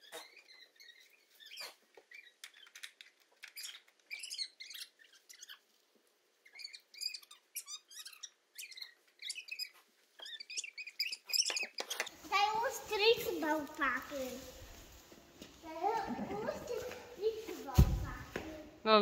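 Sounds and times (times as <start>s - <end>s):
loose hay rustling: 12.1s - 18.5s.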